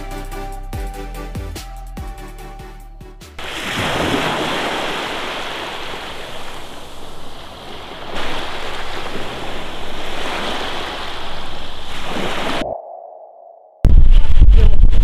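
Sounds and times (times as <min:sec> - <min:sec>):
waves washing up beach: 0:03.4 - 0:12.6
wind rumbling on microphone: 0:13.8 - 0:15.0.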